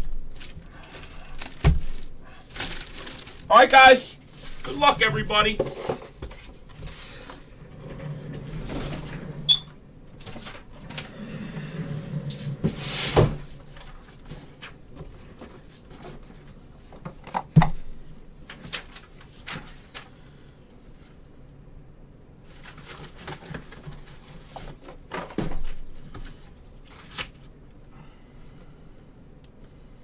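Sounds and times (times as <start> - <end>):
card packs and cases clicking: 0.3 - 3.5.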